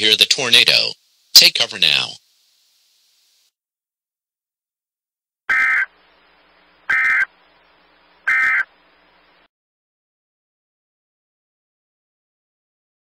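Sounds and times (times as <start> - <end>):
faint hiss: 0.0 - 3.6, 5.8 - 9.5.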